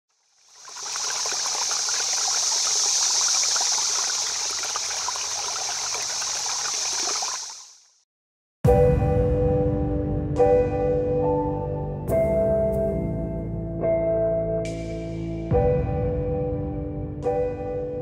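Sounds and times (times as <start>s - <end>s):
water trickling: 0.1s - 7.9s.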